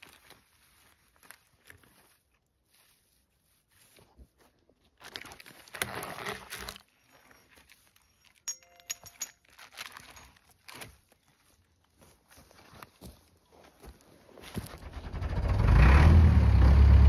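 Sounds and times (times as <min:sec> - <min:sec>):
rustling in dry pine needles: 0:00.0 - 0:08.4, 0:09.4 - 0:14.8
metal cable clinking: 0:08.0 - 0:10.9.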